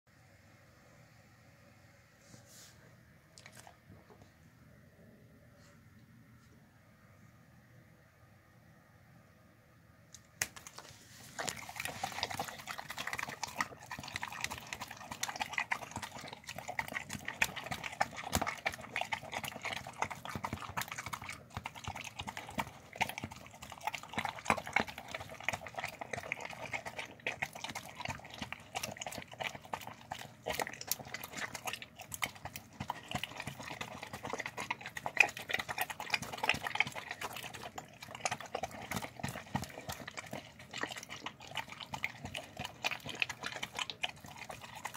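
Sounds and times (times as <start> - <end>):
dog chewing and slurping: 10.4 - 44.9.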